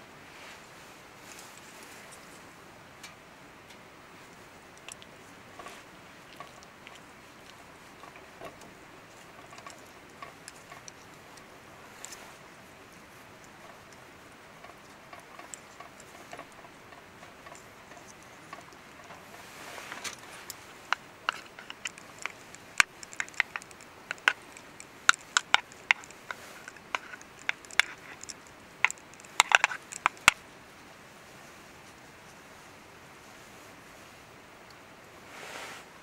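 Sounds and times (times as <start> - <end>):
rustling: 0.2 - 3.2, 4.1 - 34.3, 35.2 - 36.0
clicks of small hard objects: 19.9 - 30.4.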